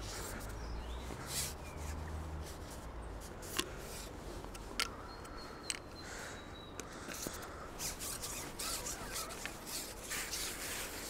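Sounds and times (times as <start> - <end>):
fishing tackle clicks and knocks: 4.5 - 6.0.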